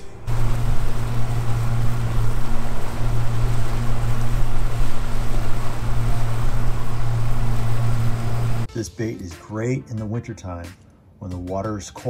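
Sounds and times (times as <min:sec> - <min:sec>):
outboard motor droning: 0:00.0 - 0:08.7
wind and water rushing: 0:00.0 - 0:08.7.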